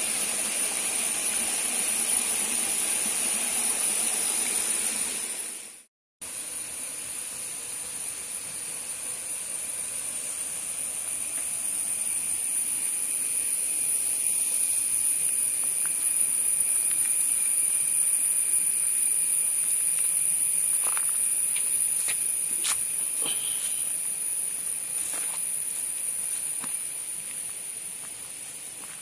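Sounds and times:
cicadas droning: 0.0s - 29.0s
fainter lower insect tone: 6.2s - 29.0s.

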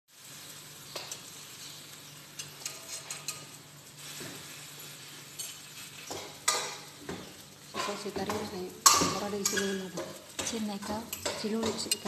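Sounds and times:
metal spoon clinking steel bowl: 8.8s - 12.0s.

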